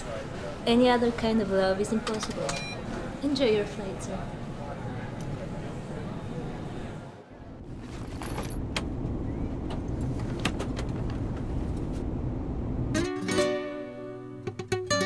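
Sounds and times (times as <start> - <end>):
airliner cabin rumble: 4.4 - 13.0
plucked acoustic guitar music: 13.0 - 15.0.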